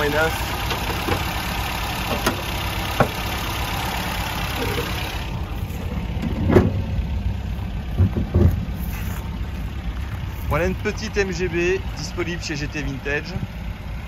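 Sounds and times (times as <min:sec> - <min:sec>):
car engine idling: 0:00.0 - 0:14.0
thump: 0:06.2 - 0:06.8, 0:08.0 - 0:08.6.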